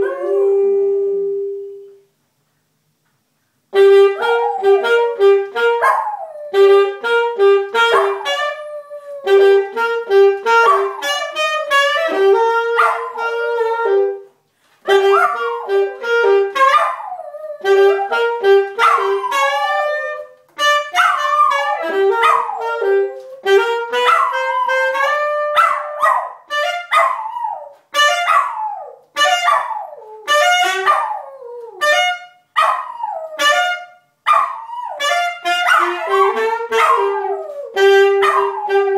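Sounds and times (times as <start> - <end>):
saxophone short notes: 17.6 - 25.6.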